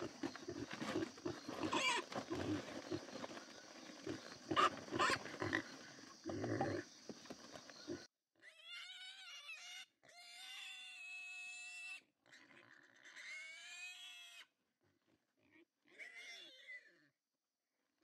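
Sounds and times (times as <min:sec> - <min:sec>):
wild boar squealing: 0:00.0 - 0:06.8.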